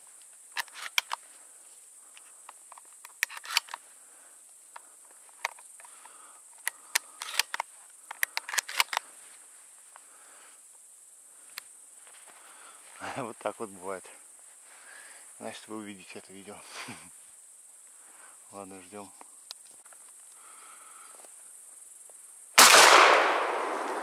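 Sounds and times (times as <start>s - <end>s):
grasshoppers chirring: 0.0s - 22.1s
handling clicks and rustles: 0.2s - 1.3s, 2.2s - 3.8s, 4.7s - 9.2s.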